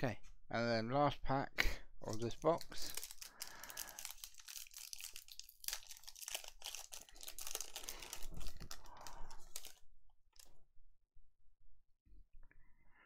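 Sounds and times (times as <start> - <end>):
wrapper tearing and crinkling: 2.0 - 9.8.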